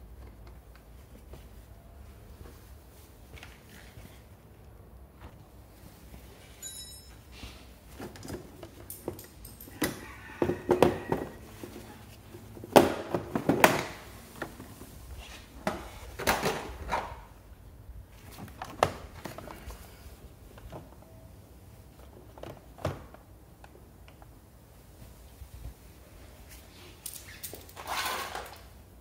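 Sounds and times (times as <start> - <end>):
hands handling scooter parts: 0.0 - 17.4.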